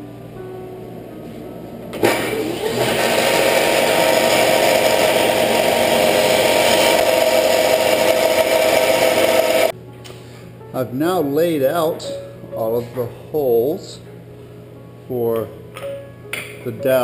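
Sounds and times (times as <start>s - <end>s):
sander motor running: 2.0s - 9.7s.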